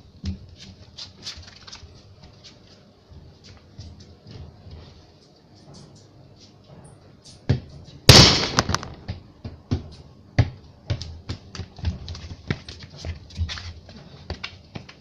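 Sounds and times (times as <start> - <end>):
football kicked on concrete: 7.5 - 13.6.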